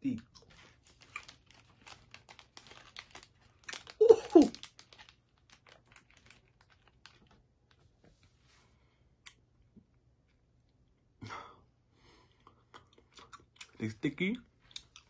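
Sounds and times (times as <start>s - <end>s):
gum chewing mouth clicks: 12.4s - 13.8s.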